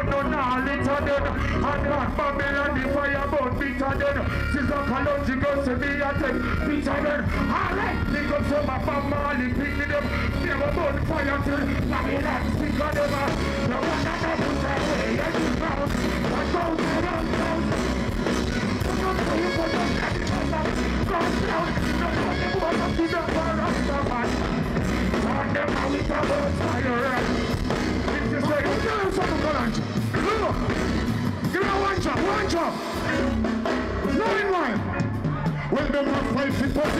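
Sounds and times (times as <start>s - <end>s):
person singing into microphone: 0.0s - 27.4s
bass line: 0.0s - 36.9s
reggae band playing: 0.0s - 36.9s.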